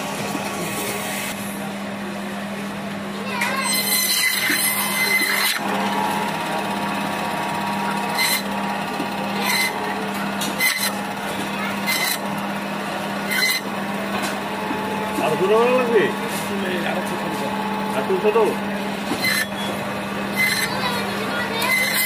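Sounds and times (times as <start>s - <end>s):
band saw motor hum: 3.1s - 22.0s
saw blade rasping through fish: 3.7s - 5.6s, 10.6s - 11.0s, 11.9s - 12.2s, 19.2s - 19.7s, 20.4s - 20.8s, 21.6s - 22.0s.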